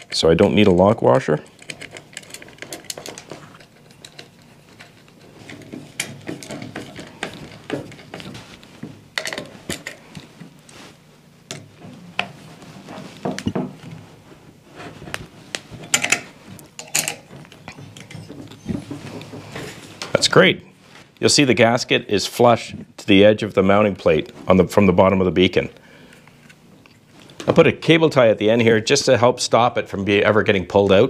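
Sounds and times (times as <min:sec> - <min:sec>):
metal hardware clicking and clinking: 0:01.4 - 0:08.4, 0:09.2 - 0:10.3, 0:15.9 - 0:18.2.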